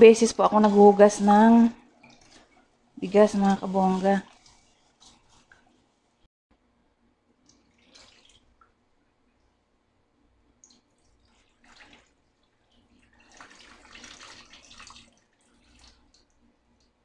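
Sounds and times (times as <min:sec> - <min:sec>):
water pouring into a sink: 0:07.5 - 0:08.8, 0:10.6 - 0:16.4.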